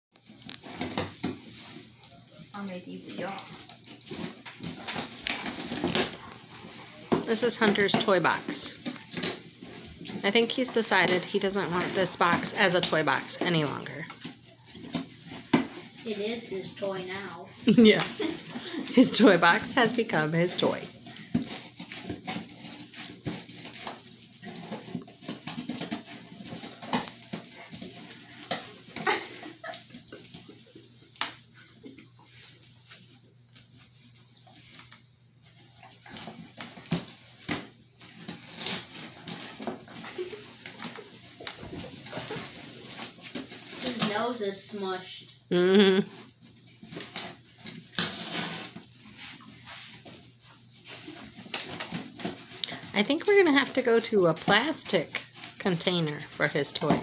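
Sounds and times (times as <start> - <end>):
dog chewing cardboard: 0.2 - 10.2, 13.6 - 16.2, 20.8 - 44.0, 46.1 - 55.6.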